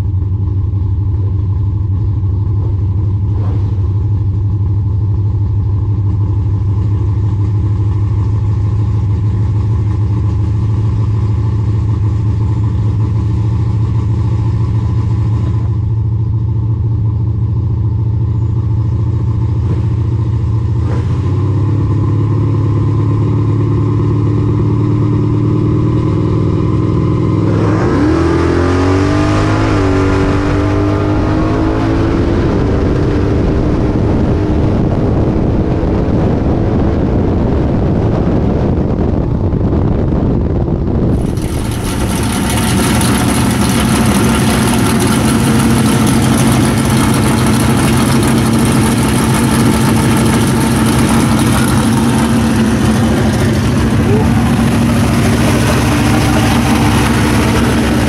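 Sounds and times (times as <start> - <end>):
car engine accelerating at full throttle: 0.0 - 16.0, 19.2 - 58.0
car engine idling: 0.0 - 20.8, 38.8 - 58.0
wind rushing over microphone: 27.8 - 42.5.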